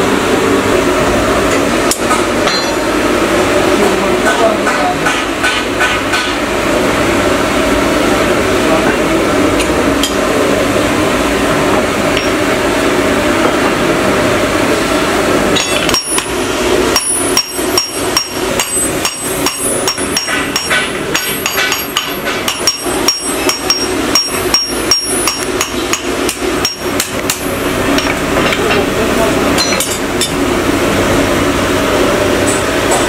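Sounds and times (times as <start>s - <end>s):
hammer striking metal on anvil: 1.8s - 3.0s, 4.2s - 6.4s, 9.6s - 10.3s, 12.1s - 12.6s, 15.5s - 28.9s, 29.6s - 30.4s.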